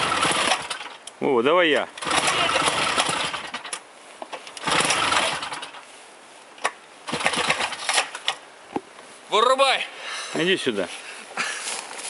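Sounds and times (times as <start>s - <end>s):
small engine revving: 2.0s - 3.6s, 4.6s - 5.7s.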